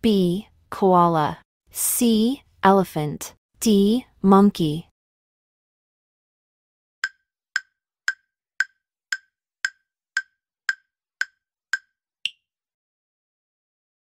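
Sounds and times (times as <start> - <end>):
clock ticking: 7.0 - 11.9.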